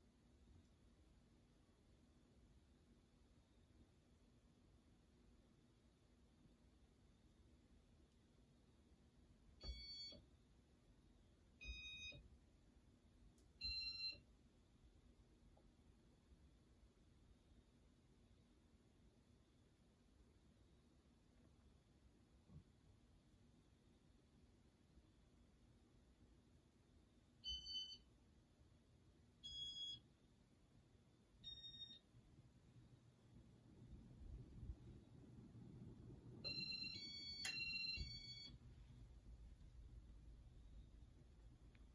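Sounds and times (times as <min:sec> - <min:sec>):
fan control beeping: 0:36.5 - 0:38.6.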